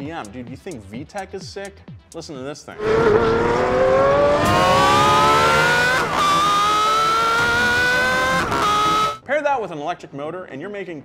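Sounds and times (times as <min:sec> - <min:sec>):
car engine accelerating: 0:02.8 - 0:09.2.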